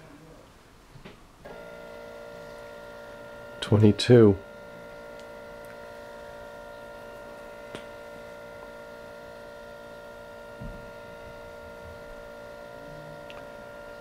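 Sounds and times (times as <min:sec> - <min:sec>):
stepper motors humming: 0:01.4 - 0:14.0
soft low thump: 0:10.6 - 0:10.9.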